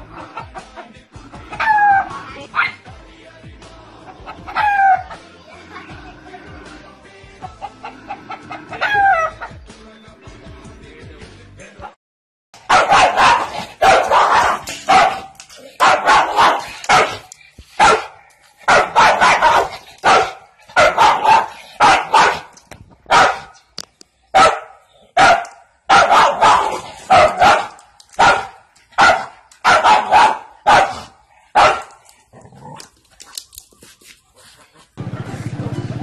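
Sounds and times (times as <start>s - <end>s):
dog barking: 1.6s - 2.8s, 8.3s - 9.5s, 12.6s - 22.5s, 23.1s - 23.6s, 24.4s - 32.0s.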